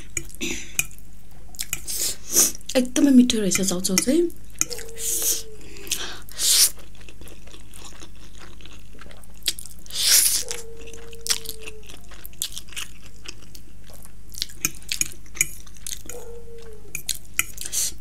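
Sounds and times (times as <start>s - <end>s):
wet chewing: 5.8s - 18.0s
person slurping noodles: 6.3s - 6.8s, 9.9s - 10.6s.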